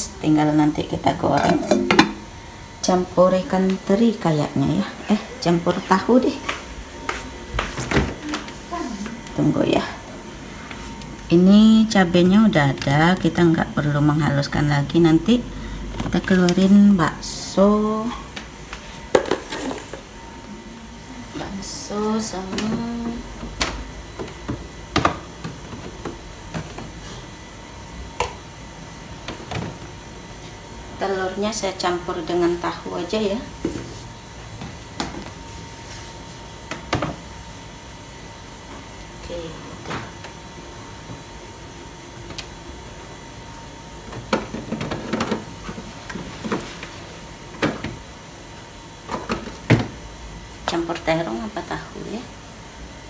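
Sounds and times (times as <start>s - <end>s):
plastic containers knocking and clattering: 19.1s - 20.1s, 44.1s - 46.9s.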